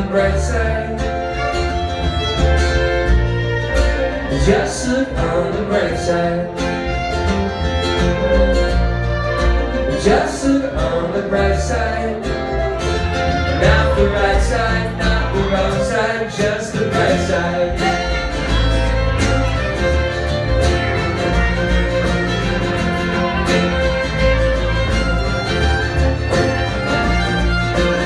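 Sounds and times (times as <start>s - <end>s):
bowed fiddle: 0.0s - 28.0s
strummed acoustic strings: 0.0s - 28.0s
upright bass: 0.0s - 28.0s.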